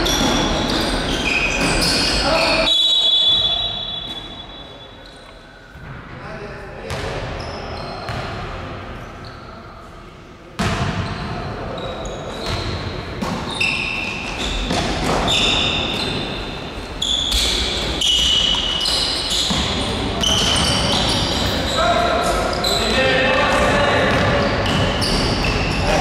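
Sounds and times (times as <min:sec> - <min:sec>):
sneakers squeaking: 0:00.0 - 0:05.9, 0:06.9 - 0:10.0, 0:10.6 - 0:26.0
basketball bouncing: 0:24.0 - 0:25.4.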